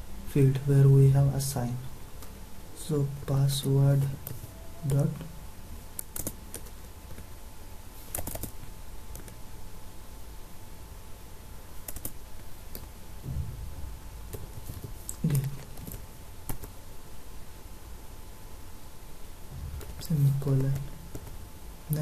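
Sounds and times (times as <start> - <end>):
keyboard typing: 6.0 - 7.2, 8.1 - 9.4, 11.8 - 12.9, 14.3 - 16.7.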